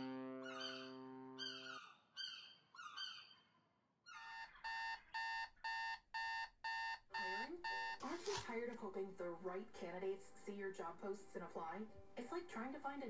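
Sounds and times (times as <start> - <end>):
alarm clock beeping: 4.2 - 8.4.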